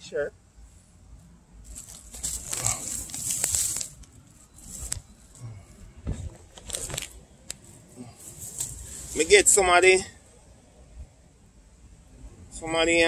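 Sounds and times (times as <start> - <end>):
dry grass rustling and crackling: 1.6 - 9.5
twigs snapping: 1.7 - 5.1.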